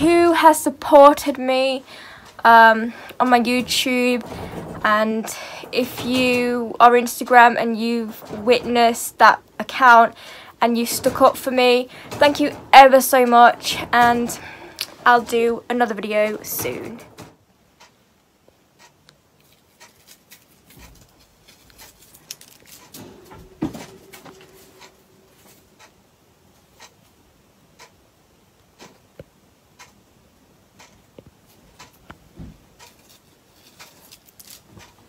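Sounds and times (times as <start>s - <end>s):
low thump: 3.0s - 17.4s
loud knock: 3.2s - 17.4s.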